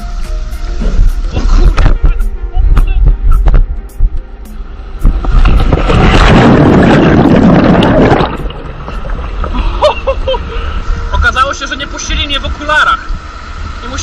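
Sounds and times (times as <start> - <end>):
water splashing: 5.0 - 14.0.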